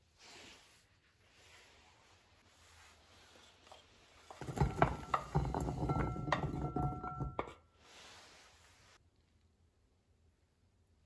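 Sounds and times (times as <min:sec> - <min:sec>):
carrot chunks clattering into pan: 0:04.4 - 0:07.6.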